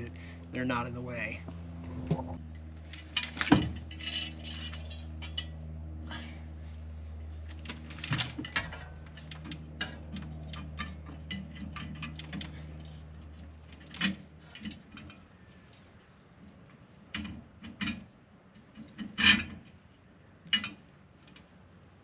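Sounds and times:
steady low hum: 0.0s - 22.0s
metal parts and tools clinking: 2.9s - 5.6s, 7.6s - 15.9s.

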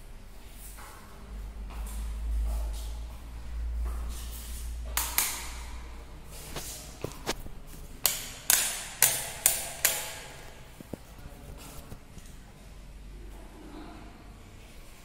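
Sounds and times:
footsteps on tiled floor: 0.3s - 5.4s, 6.0s - 8.0s.

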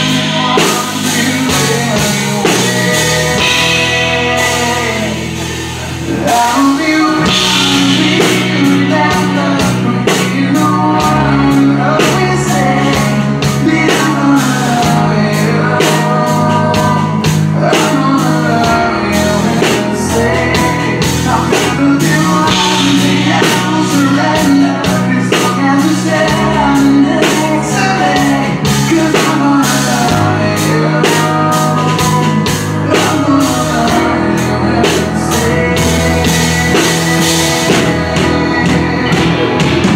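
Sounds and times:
bass guitar: 0.0s - 39.9s
drums: 0.0s - 39.9s
electric guitar: 0.0s - 39.9s
man singing lead vocal: 0.0s - 39.9s.

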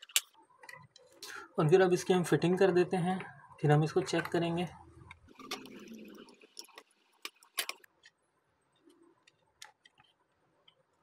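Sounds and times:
plastic parts clicking and tapping: 0.0s - 1.1s, 8.8s - 11.0s.

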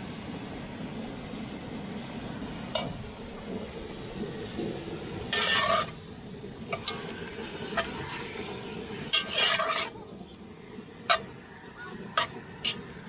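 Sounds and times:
metal spatula stirring: 5.3s - 5.9s, 9.1s - 9.9s, 12.1s - 12.9s
spatula scraping against pot: 5.3s - 6.0s, 9.1s - 10.0s, 12.2s - 12.9s.

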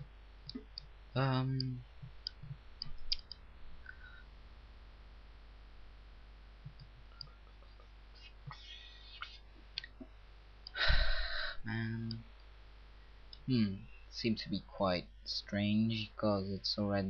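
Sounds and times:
low mains hum: 0.0s - 17.0s
faint clicks: 1.6s - 4.1s, 6.6s - 10.8s.

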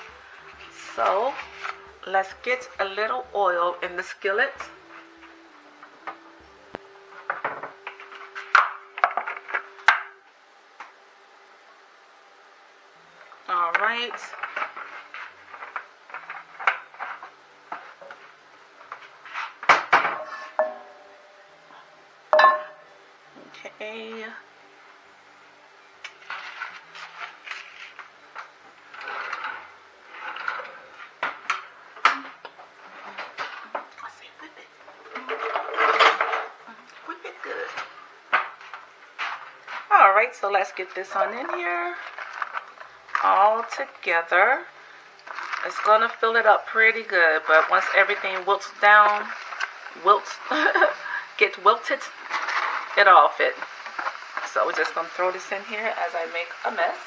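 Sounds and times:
faint steady hum: 0.0s - 57.0s
rustling: 13.7s - 21.6s, 26.0s - 34.3s, 34.9s - 57.0s
cookware and utensils clinking: 19.7s - 21.5s, 22.3s - 22.9s, 35.1s - 36.6s
cookware clicking and knocking: 22.4s - 22.8s.

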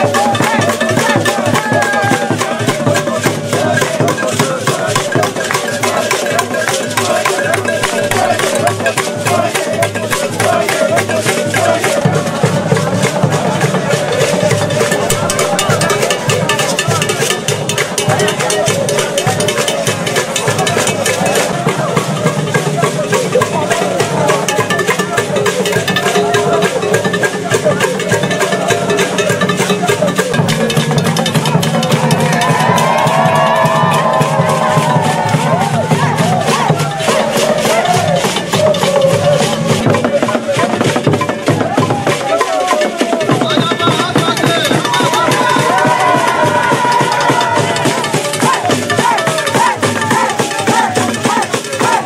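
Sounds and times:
drums and rattles beat: 0.0s - 52.0s
many voices singing: 0.0s - 52.0s
wavering melodic line: 14.1s - 17.8s.

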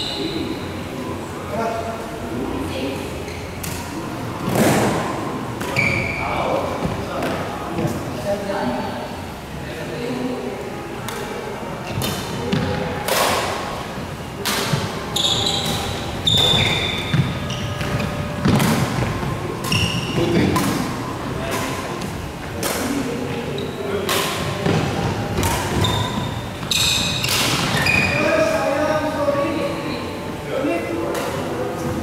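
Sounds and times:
shoes squeaking on court: 5.6s - 6.2s, 15.1s - 20.6s, 24.6s - 28.3s
rackets hitting shuttlecock: 15.6s - 19.0s, 19.6s - 23.0s, 24.1s - 26.2s, 26.8s - 28.0s.

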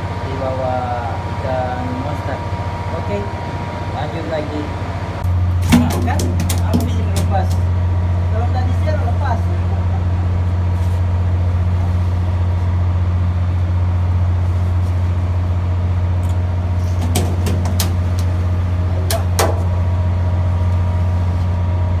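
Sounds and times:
ship machinery drone: 0.0s - 22.0s
sharp knocks: 5.6s - 7.6s, 17.0s - 18.3s, 19.1s - 19.7s.

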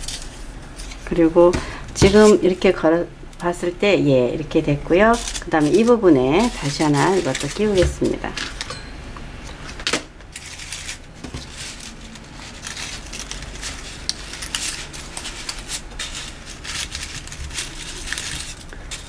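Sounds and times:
paper leaves rustling and crackling: 0.0s - 2.7s, 4.4s - 8.7s, 10.2s - 19.0s.

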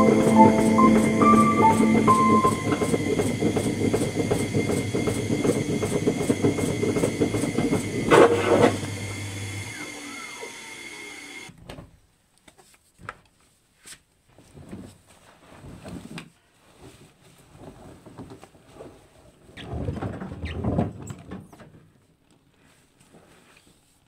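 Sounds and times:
washing machine running: 0.0s - 11.5s.

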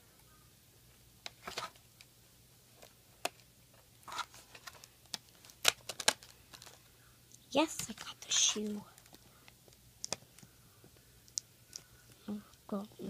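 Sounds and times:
cardboard rustling: 4.0s - 6.8s.

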